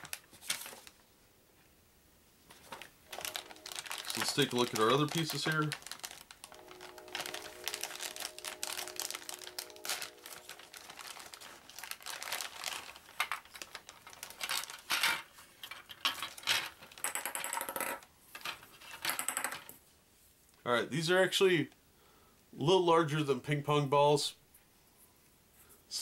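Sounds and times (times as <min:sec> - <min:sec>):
plastic bag crinkling: 0:00.0 - 0:01.0, 0:02.5 - 0:17.0
plastic balls clicking together: 0:03.1 - 0:19.7.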